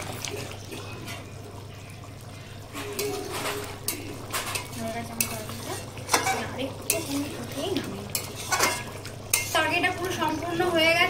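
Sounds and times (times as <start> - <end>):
curry simmering and bubbling: 0.0 - 11.0
spatula scraping metal pan: 2.8 - 7.3, 8.1 - 9.7.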